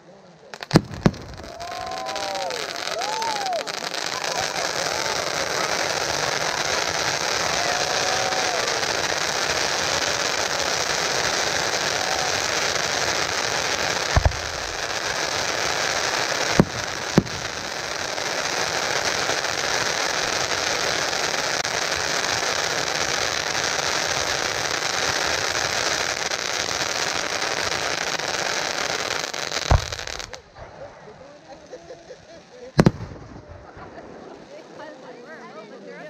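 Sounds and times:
fireworks hissing and crackling: 0:00.0 - 0:36.0
sharp bangs: 0:29.7 - 0:30.3.

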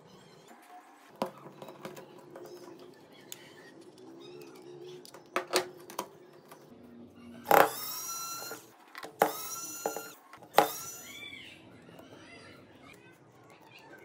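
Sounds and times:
electric screwdriver whine: 0:07.5 - 0:11.2.

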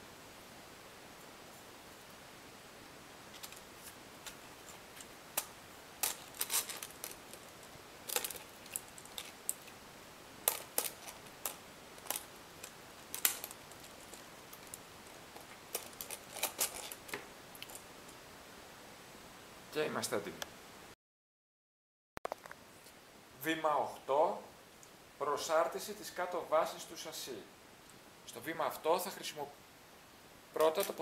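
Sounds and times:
metal parts clicking and tapping: 0:05.4 - 0:09.7, 0:10.4 - 0:14.8, 0:15.4 - 0:17.8, 0:30.6 - 0:31.0.

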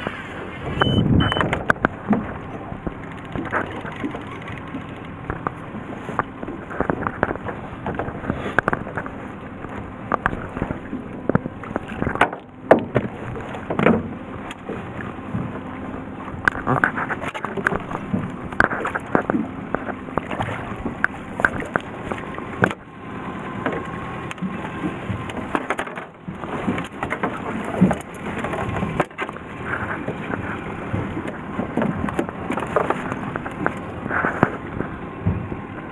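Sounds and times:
boat engine idling: 0:00.0 - 0:35.9
fishing gear knocking on boat: 0:10.1 - 0:14.2, 0:23.6 - 0:29.4, 0:30.0 - 0:33.8.

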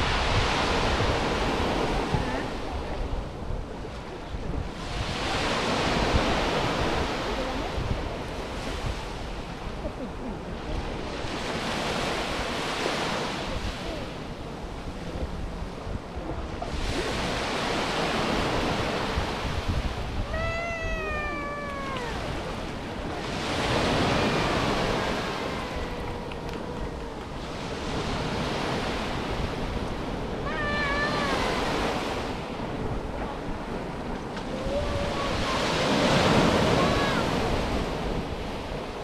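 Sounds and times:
waves breaking on shore: 0:00.0 - 0:39.0
drawn-out falling call: 0:20.3 - 0:22.4.

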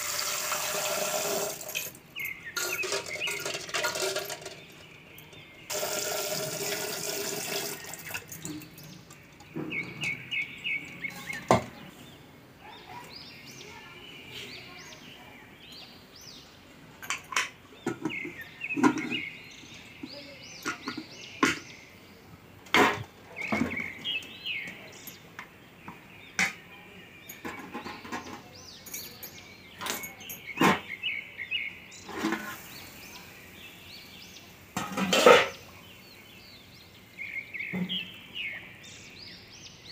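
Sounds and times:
tap water running into a pot: 0:00.0 - 0:01.9, 0:02.6 - 0:04.6, 0:05.7 - 0:09.5
birds chirping: 0:00.0 - 0:39.9
metal cookware clinking: 0:00.2 - 0:08.9, 0:27.3 - 0:30.8, 0:34.8 - 0:35.6.

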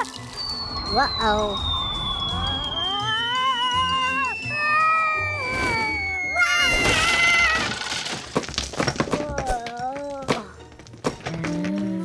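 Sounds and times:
thin tone sliding downward: 0:00.0 - 0:06.9.

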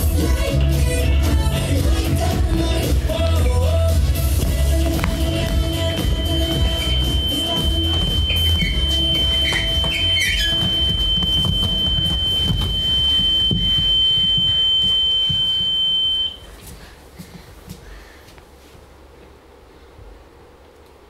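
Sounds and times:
high-pitched electronic tone: 0:05.0 - 0:16.4.

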